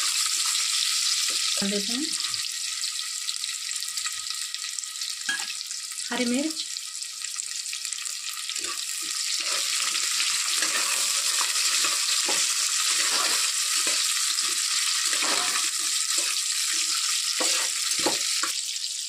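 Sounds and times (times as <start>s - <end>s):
food sizzling in hot oil: 0.0s - 19.0s
spatula scraping pot: 8.6s - 18.5s.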